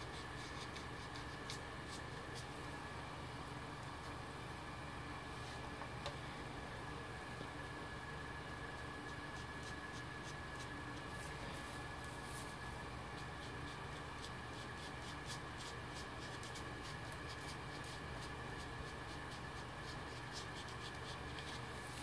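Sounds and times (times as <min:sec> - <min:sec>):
faint steady hum: 0:00.0 - 0:22.0.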